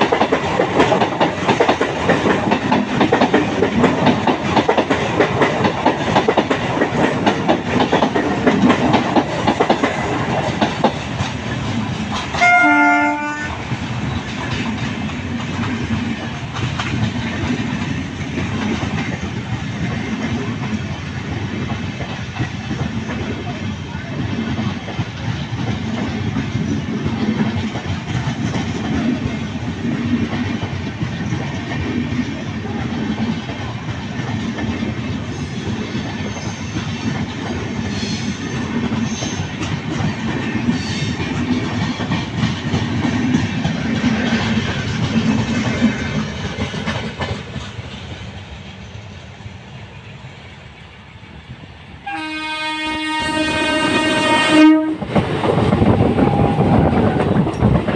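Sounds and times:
train wheels clattering on rail: 0.0s - 51.5s, 52.1s - 57.9s
train horn: 12.4s - 13.6s, 52.0s - 55.2s.

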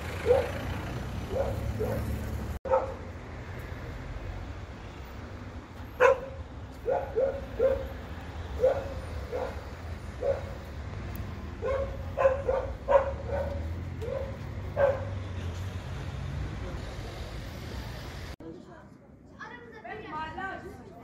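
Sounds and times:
dog barking: 0.2s - 0.6s, 1.3s - 3.0s, 6.0s - 8.0s, 8.6s - 10.7s, 11.6s - 15.2s.

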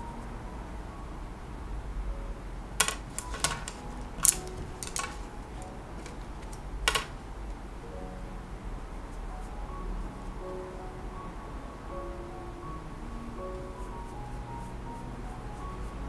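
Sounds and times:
paintbrushes clinking on cup: 2.8s - 7.2s.

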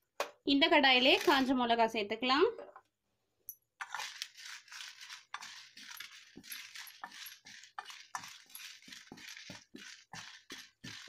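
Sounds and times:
chillies rattling on pan: 3.8s - 11.0s
spatula scraping pan: 3.8s - 11.0s.

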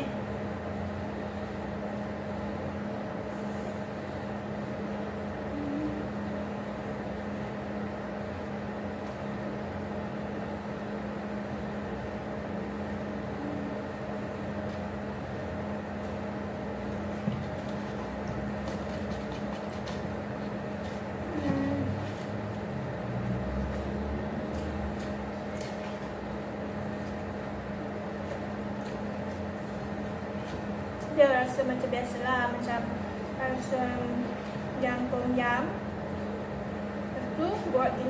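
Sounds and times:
steady mechanical hum: 0.0s - 38.0s.

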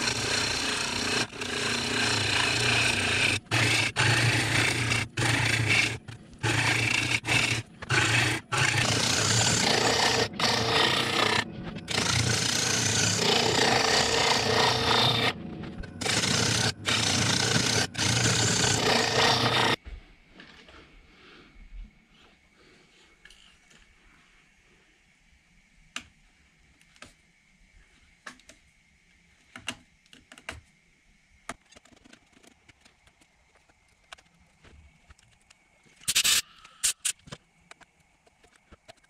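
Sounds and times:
gouge scraping wood on lathe: 0.0s - 19.8s
lathe motor hum: 0.0s - 19.8s.

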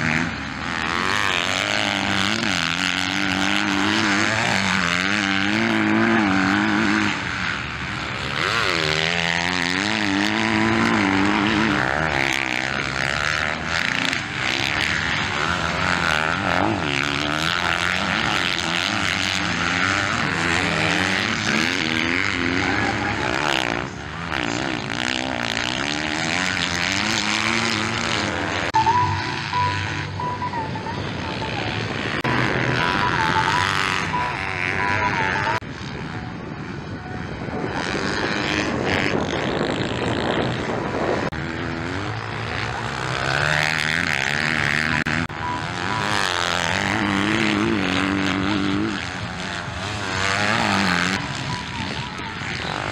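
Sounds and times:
dirt bike engines revving: 0.0s - 52.9s
short steady tone: 28.8s - 35.6s.

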